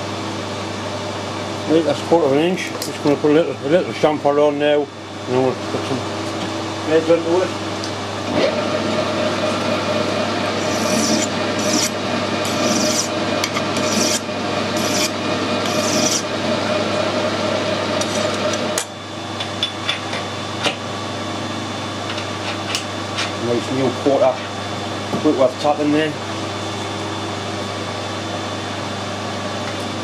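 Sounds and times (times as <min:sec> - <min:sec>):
metal lathe running: 0:08.0 - 0:19.5
file rasping on metal: 0:10.5 - 0:16.4.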